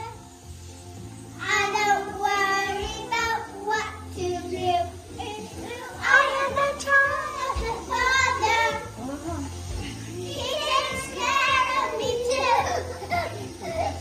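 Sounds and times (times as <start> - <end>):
children singing: 1.4 - 9.0, 9.8 - 14.0.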